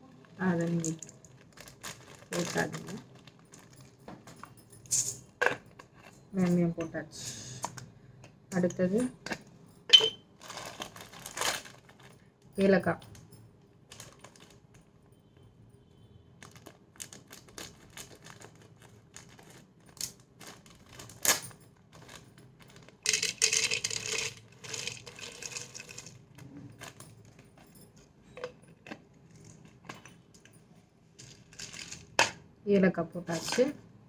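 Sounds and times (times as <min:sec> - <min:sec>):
pods rattling into plastic jar: 0:16.4 - 0:30.6, 0:31.2 - 0:32.3.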